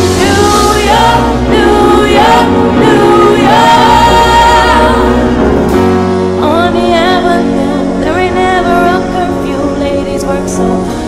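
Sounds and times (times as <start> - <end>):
low bass line: 0.0 - 8.2
voices singing long gliding notes: 0.0 - 11.0.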